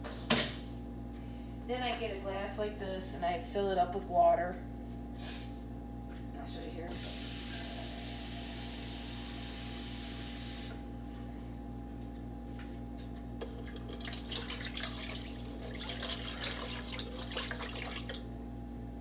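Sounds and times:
steady low hum: 0:00.0 - 0:19.0
water pouring and splashing: 0:13.4 - 0:18.3.

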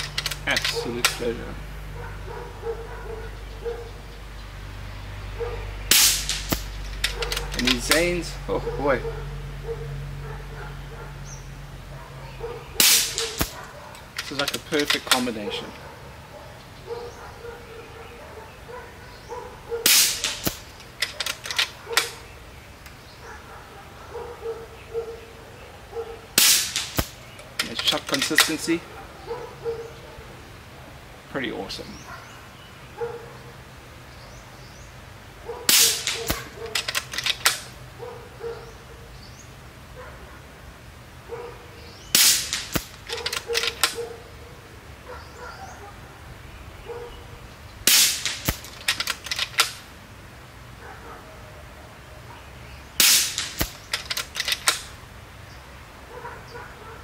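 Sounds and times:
cocking handle clicks: 0:00.0 - 0:01.2, 0:20.2 - 0:22.2, 0:35.9 - 0:37.7, 0:42.6 - 0:44.0, 0:48.2 - 0:49.8, 0:53.4 - 0:54.9
air rifle shot: 0:05.9 - 0:07.3, 0:12.8 - 0:13.6, 0:19.8 - 0:21.3, 0:26.4 - 0:27.2, 0:35.7 - 0:37.7, 0:42.1 - 0:43.0, 0:47.8 - 0:48.8, 0:53.0 - 0:53.9.

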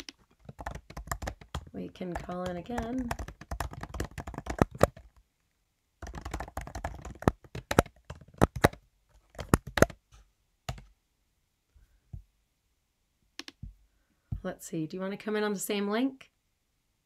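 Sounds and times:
computer keyboard typing: 0:00.0 - 0:05.2, 0:06.0 - 0:10.0, 0:10.7 - 0:10.9.

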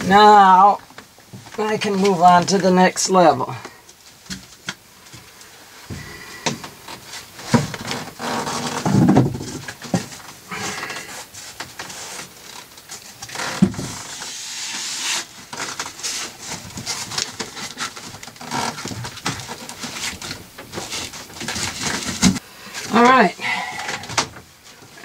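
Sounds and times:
panel scraping fibreglass: 0:05.9 - 0:23.1.

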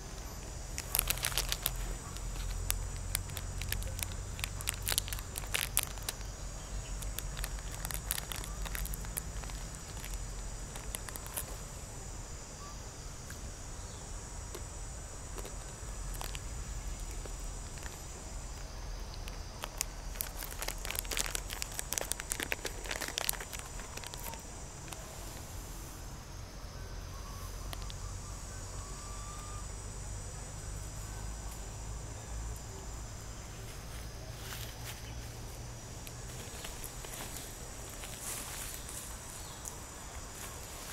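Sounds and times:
leaves and twigs crackling: 0:00.0 - 0:11.9, 0:15.2 - 0:26.1, 0:27.3 - 0:28.2, 0:33.6 - 0:40.9
low steady rumble: 0:00.0 - 0:38.1.

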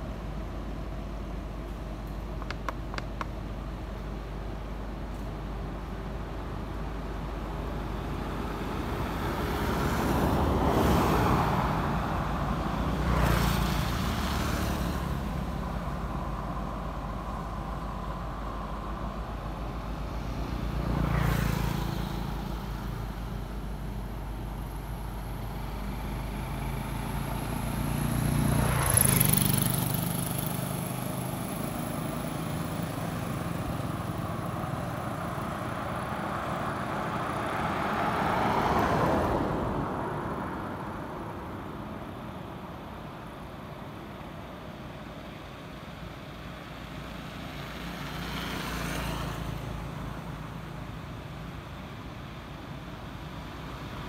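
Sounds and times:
vehicles passing: 0:00.0 - 0:54.0.

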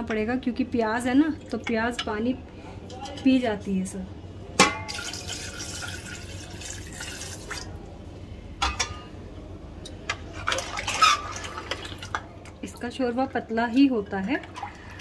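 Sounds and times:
broth splashing into a pot: 0:04.6 - 0:07.8.

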